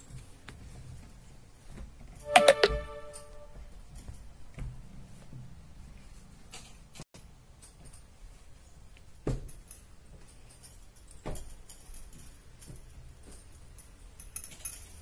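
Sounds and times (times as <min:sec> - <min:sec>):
knocks and clicks: 0:02.2 - 0:03.6.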